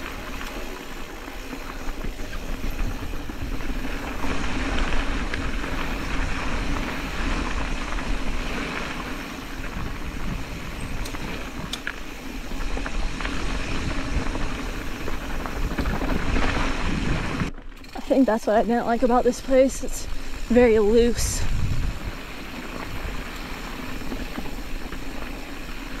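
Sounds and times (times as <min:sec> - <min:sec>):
bike clicking and rattling: 0:00.0 - 0:26.0
bike tyres crunching on gravel: 0:00.0 - 0:26.0
wind noise on microphone: 0:00.0 - 0:26.0.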